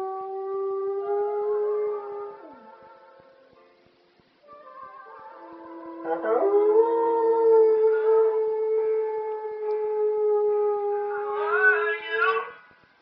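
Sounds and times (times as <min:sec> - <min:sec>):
dog howling: 0:00.0 - 0:03.1, 0:05.4 - 0:12.6.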